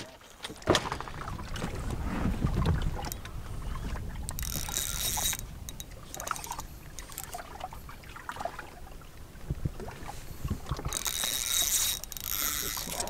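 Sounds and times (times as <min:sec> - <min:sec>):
low wind: 0:00.0 - 0:13.0
water noise: 0:00.0 - 0:13.0
fishing reel ratchet clicking: 0:04.3 - 0:07.4, 0:10.8 - 0:13.0
high buzzing reel: 0:04.4 - 0:05.4, 0:10.9 - 0:13.0.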